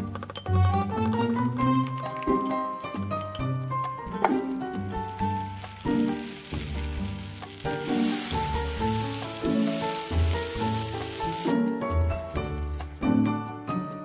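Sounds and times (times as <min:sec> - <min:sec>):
butter sizzling in frying pan: 0:04.3 - 0:13.2.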